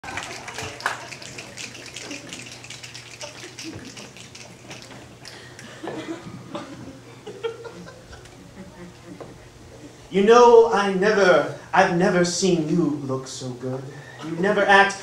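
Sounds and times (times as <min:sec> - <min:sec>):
audience applause: 0:00.0 - 0:05.7.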